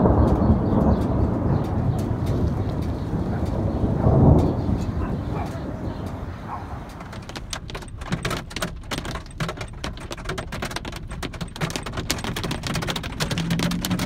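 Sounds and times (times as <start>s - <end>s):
hail pelting a windshield: 5.7s - 14.0s.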